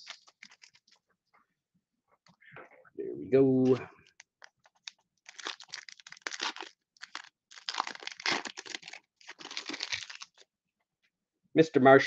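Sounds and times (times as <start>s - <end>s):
foil wrapper tearing and crinkling: 0.0s - 1.0s, 4.1s - 10.4s.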